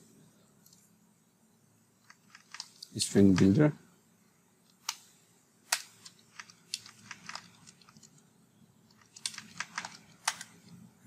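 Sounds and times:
computer keyboard keystrokes: 2.1 - 3.6, 5.7 - 8.1, 8.9 - 10.6.

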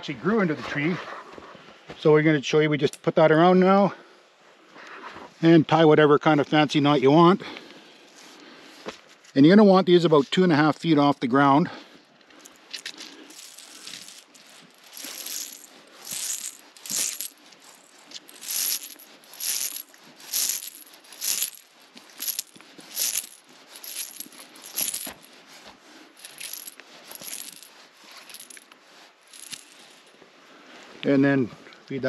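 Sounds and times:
cord swishing around tree trunk: 12.4 - 30.3.

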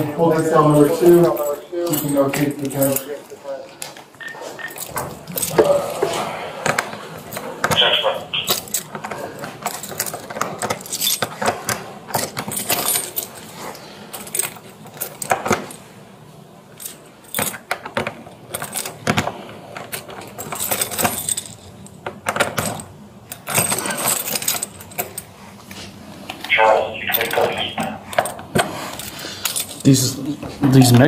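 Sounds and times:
keys jangling: 0.4 - 3.3, 4.2 - 6.0, 7.3 - 13.5, 14.1 - 15.8, 16.7 - 19.0, 19.8 - 25.3, 26.5 - 30.0.

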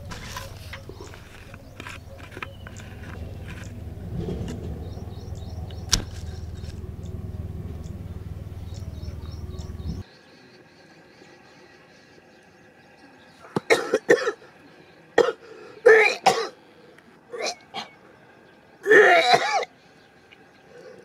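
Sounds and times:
person clearing throat: 15.2 - 16.6
person coughing: 15.2 - 16.6.

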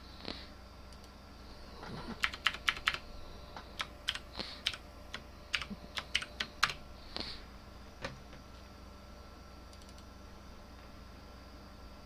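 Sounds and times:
keyboard typing: 2.0 - 3.0, 3.8 - 6.8.

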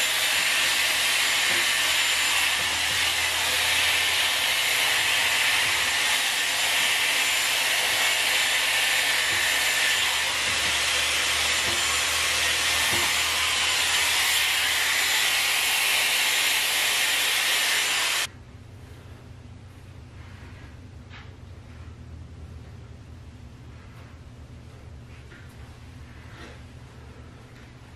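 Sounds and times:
hot-air brush blowing: 0.0 - 18.3.

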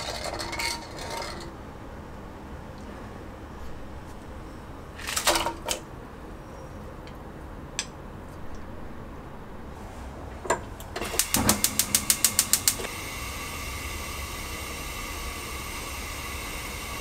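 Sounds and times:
gas burner flame hissing: 9.7 - 17.0
gas igniter clicking: 10.8 - 13.0.

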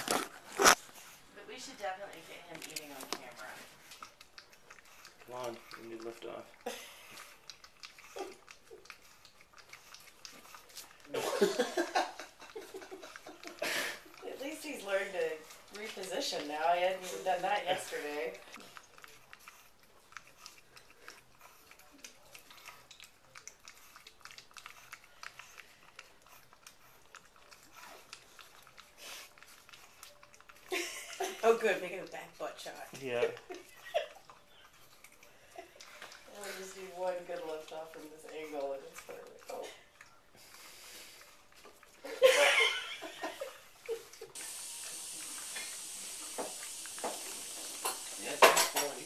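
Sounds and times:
puppy chewing food in metal bowl: 0.0 - 49.0
steady hiss: 44.4 - 49.0.

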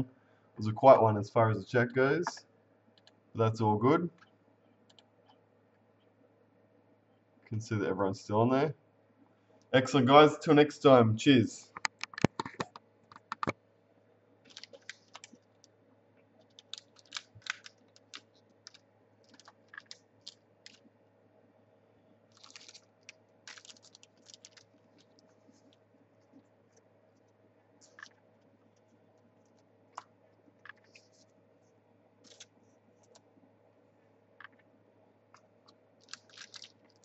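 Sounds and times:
steady low hum: 0.0 - 37.0
faint clicks and taps: 11.7 - 13.6, 24.3 - 33.5, 34.4 - 34.7.

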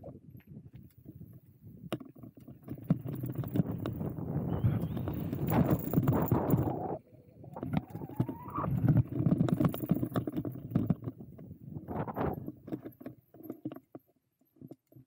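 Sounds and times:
bike rattling over bumps: 2.0 - 13.1.

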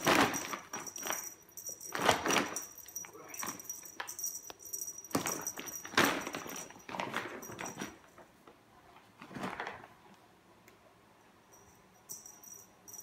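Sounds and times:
cat scrabbling in a bag: 0.0 - 1.3, 5.1 - 8.1, 9.2 - 9.9.

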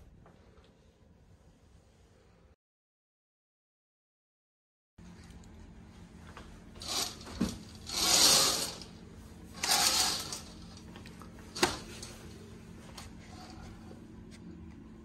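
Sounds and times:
curtain fabric swishing on rail: 6.8 - 8.9, 9.5 - 10.6.

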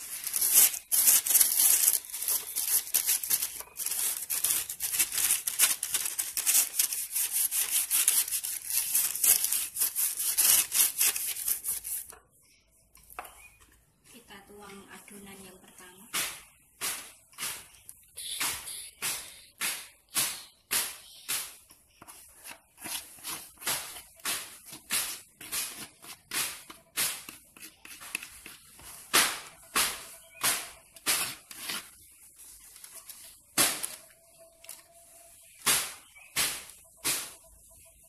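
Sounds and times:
spatula scraping plastic bowl: 22.0 - 29.0.

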